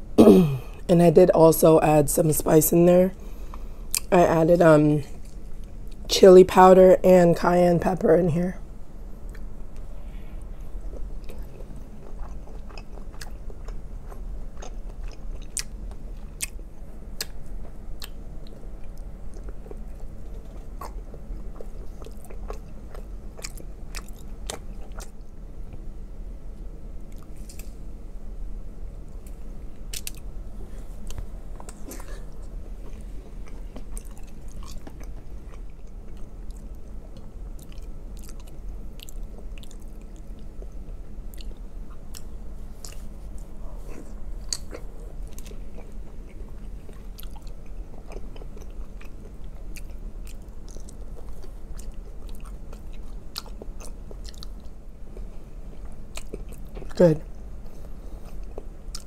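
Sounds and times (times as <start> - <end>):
chewing and biting food: 10.6 - 16.6, 17.2 - 25.9, 29.1 - 30.3, 31.0 - 59.0.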